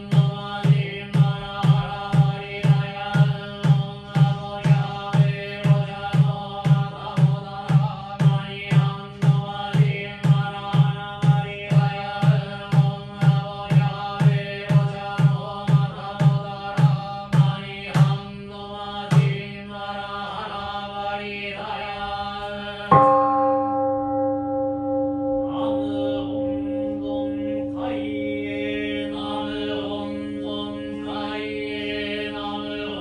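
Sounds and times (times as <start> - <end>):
percussion strokes: 0.0 - 23.6, 25.1 - 33.0
chanting: 0.0 - 33.0
bowl bell ringing: 22.9 - 33.0.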